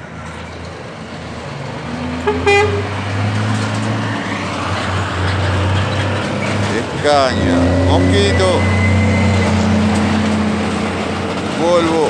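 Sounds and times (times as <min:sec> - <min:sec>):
truck diesel engine droning: 0:00.0 - 0:12.0
truck horn toot: 0:02.2 - 0:03.1, 0:07.3 - 0:10.5.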